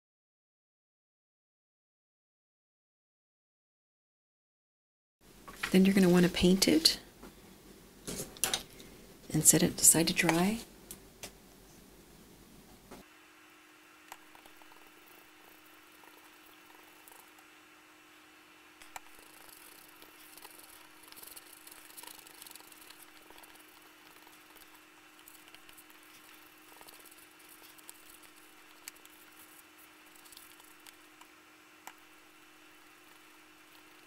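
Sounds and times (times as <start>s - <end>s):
steady low hum: 5.3s - 34.0s
paintbrush swishing on paper: 18.9s - 31.1s.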